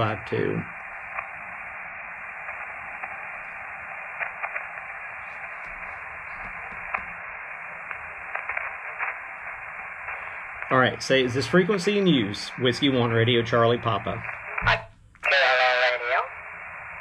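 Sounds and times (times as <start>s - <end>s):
faint crackles: 0.0s - 17.0s
radio receiver hiss: 0.0s - 17.0s.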